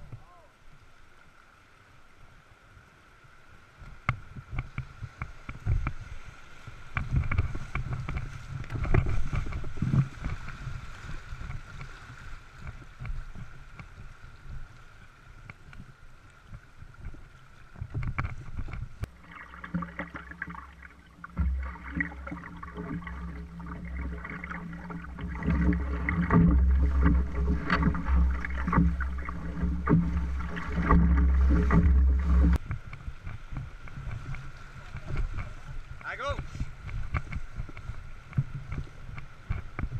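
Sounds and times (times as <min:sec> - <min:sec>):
paddle splashes: 0:00.0 - 0:39.9
water slapping hull: 0:04.0 - 0:14.7, 0:16.5 - 0:39.9
wind on microphone: 0:04.1 - 0:14.8, 0:15.4 - 0:39.9
whitewater rapids rushing: 0:19.1 - 0:32.6.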